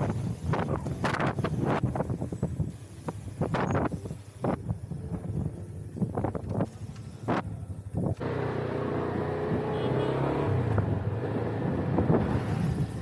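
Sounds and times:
road noise: 0.0s - 13.0s
vehicle engine running: 8.2s - 13.0s.

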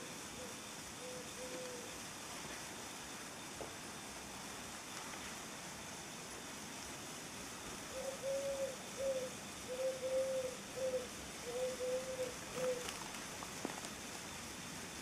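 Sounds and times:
dove cooing: 0.0s - 2.0s, 7.9s - 14.0s.

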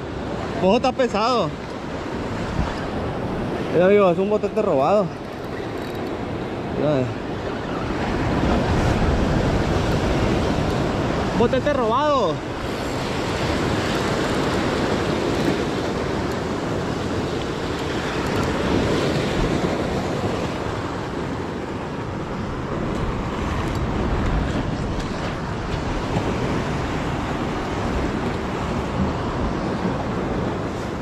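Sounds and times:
wind on microphone: 1.5s - 31.0s.

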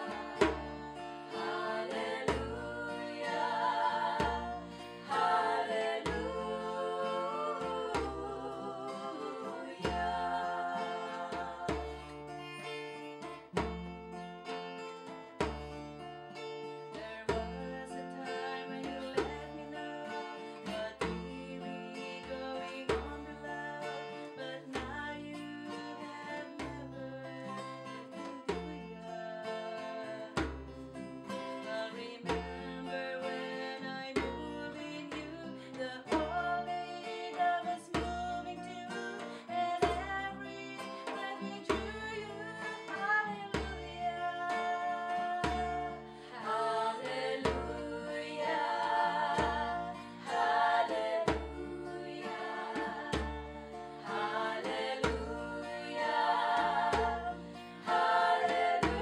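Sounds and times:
djembe hand drum beat: 0.0s - 12.6s, 13.5s - 14.2s, 30.3s - 30.9s, 37.9s - 42.8s, 43.5s - 59.0s
woman singing: 0.0s - 12.9s, 16.9s - 59.0s
acoustic guitars strumming chords: 0.0s - 59.0s.

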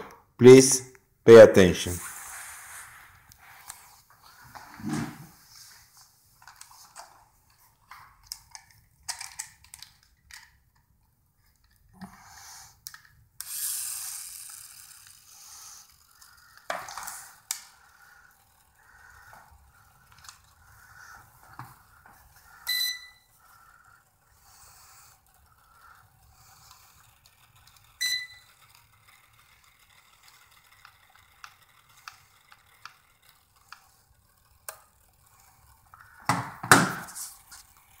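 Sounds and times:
short electronic beeps: 22.7s - 23.3s, 28.0s - 28.4s
faint control clicks: 23.4s - 36.2s.

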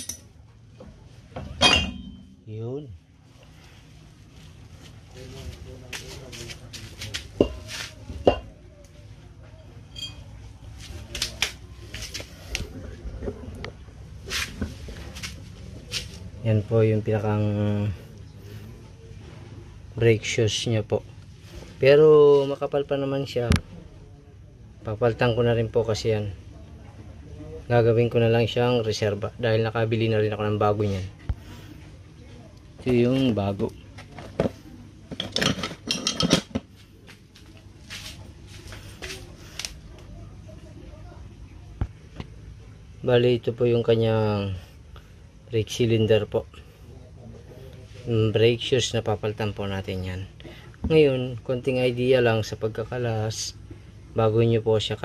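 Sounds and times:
metal brake shoes clinking: 0.0s - 0.3s
soft handling noise: 3.2s - 16.4s, 30.7s - 40.6s.

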